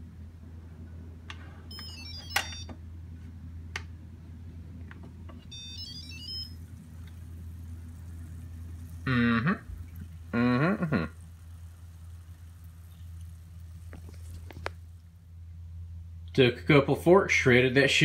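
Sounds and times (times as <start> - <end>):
steady low hum: 0.0 - 18.0
electronic beeping tones: 5.5 - 6.6.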